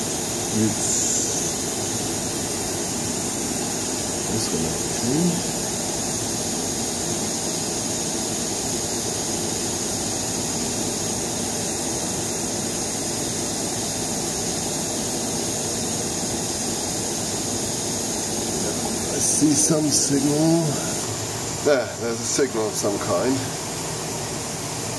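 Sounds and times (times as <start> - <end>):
compressed air hiss: 0.0 - 24.9
rotor high-pitched whine: 0.0 - 24.9.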